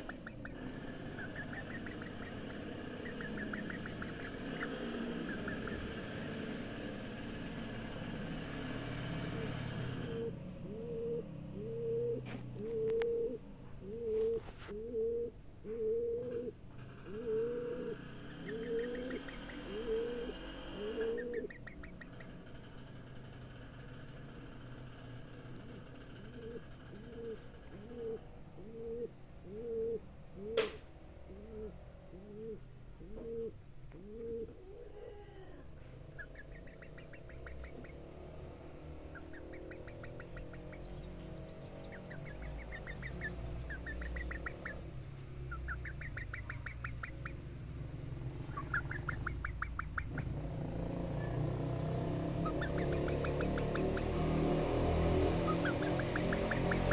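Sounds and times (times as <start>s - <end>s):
hen making soft low calls: 0.0s - 22.5s, 25.2s - 47.5s, 48.2s - 50.4s, 55.4s - 56.9s
hen trilling: 0.0s - 22.6s, 25.0s - 56.9s.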